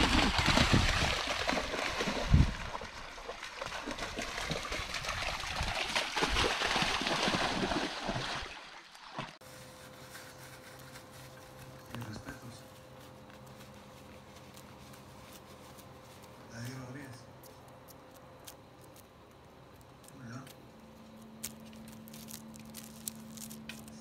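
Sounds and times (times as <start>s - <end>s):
dog splashing through water: 0.0s - 9.4s
faint steady hum: 9.4s - 24.0s.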